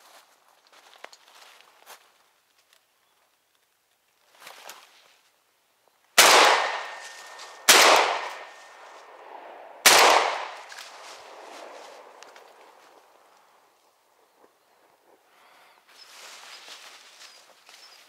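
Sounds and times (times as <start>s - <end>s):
shotgun shots echoing: 6.2s - 11.4s.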